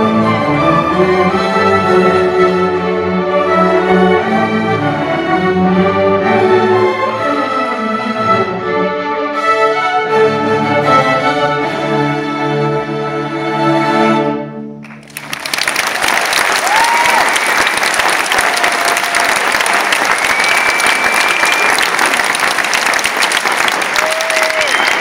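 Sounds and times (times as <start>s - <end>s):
audience applause: 14.8s - 25.0s
whistles from audience: 18.6s - 22.4s, 24.0s - 25.0s.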